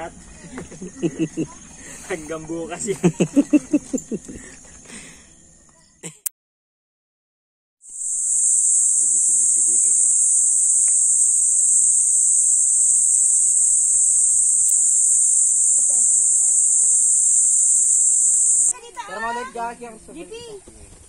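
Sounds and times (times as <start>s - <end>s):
insects buzzing: 0.0s - 5.9s, 7.9s - 18.7s.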